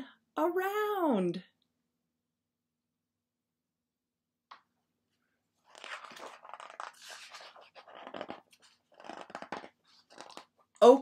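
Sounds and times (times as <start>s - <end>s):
book pages rustling: 5.2s - 10.8s.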